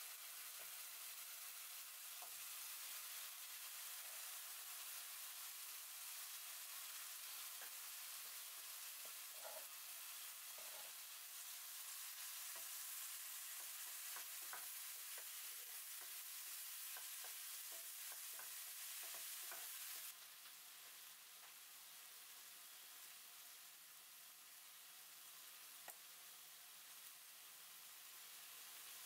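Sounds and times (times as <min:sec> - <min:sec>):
food sizzling in a pan: 0:00.0 - 0:29.0
wooden spatula scraping a pan: 0:06.1 - 0:20.0.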